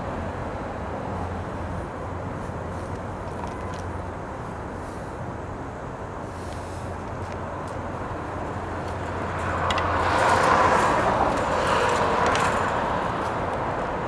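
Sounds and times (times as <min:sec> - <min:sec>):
vehicle passing: 0:06.3 - 0:14.0.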